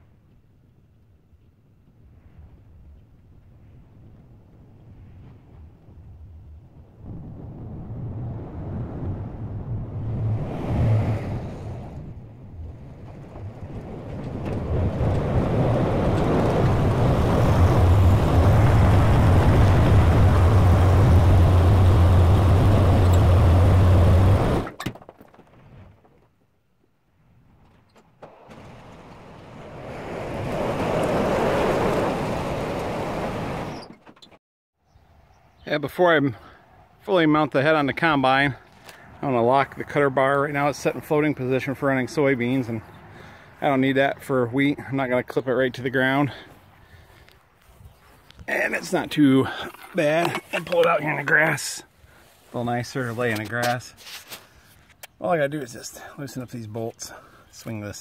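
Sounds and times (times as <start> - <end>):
softer rumble: 1.8 - 26.2
tractor diesel engine drone: 10.1 - 24.7.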